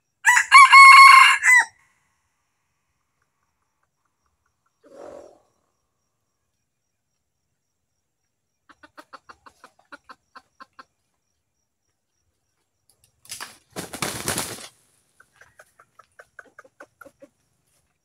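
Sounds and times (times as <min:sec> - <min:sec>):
chicken clucking: 0:03.0 - 0:05.0, 0:08.6 - 0:11.2, 0:14.0 - 0:18.0
wings flapping: 0:13.2 - 0:14.8.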